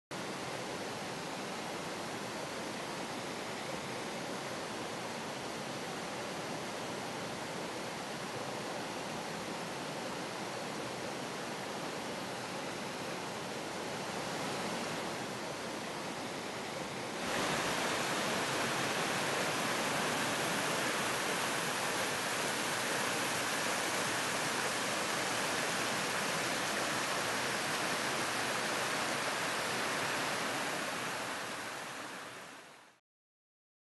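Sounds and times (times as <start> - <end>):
water rushing over rocks: 13.0 - 32.5.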